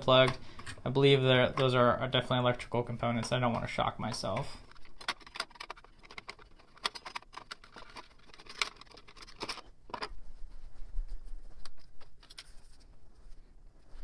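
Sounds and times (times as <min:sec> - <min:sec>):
dull handling noise: 0:00.0 - 0:14.0
plastic faceplate clicking: 0:04.1 - 0:10.1.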